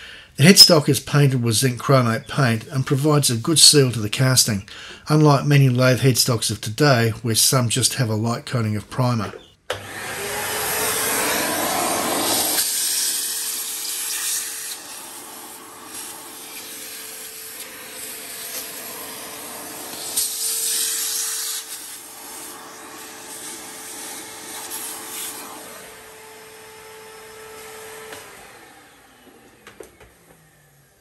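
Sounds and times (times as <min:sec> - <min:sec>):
vacuum cleaner running: 0:09.3 - 0:31.0.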